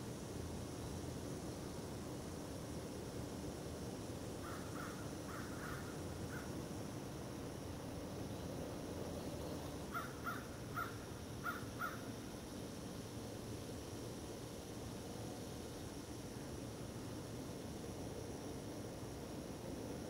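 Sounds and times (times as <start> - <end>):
tape hiss: 0.0 - 20.0
crow cawing: 4.4 - 6.4, 9.9 - 12.0.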